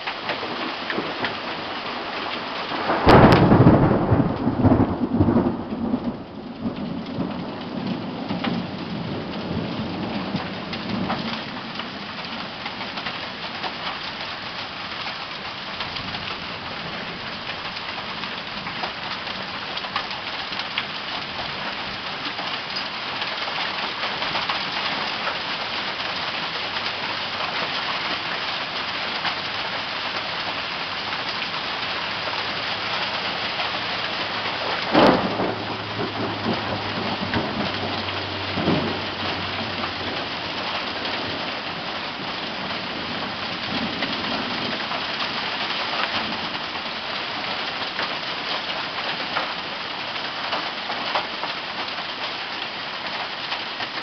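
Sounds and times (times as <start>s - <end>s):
hail and heavy rain: 0.0s - 54.0s
loud low rumble: 34.6s - 41.3s.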